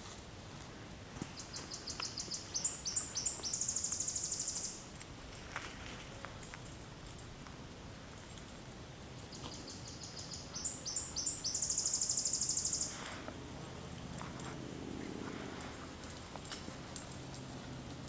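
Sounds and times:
songbird singing: 1.3 - 5.0, 9.2 - 13.3
high bird chirps: 1.4 - 4.8, 9.3 - 13.1
fast bird trill: 1.6 - 4.8, 9.6 - 13.0.

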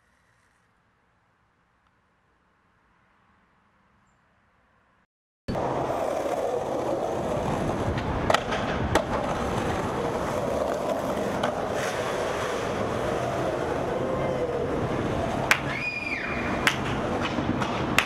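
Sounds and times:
skateboard wheels rolling on concrete: 5.5 - 18.0.

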